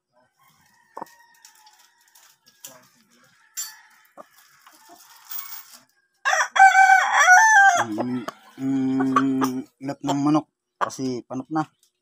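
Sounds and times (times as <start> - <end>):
rooster crowing: 0.3 - 5.5, 6.2 - 9.2.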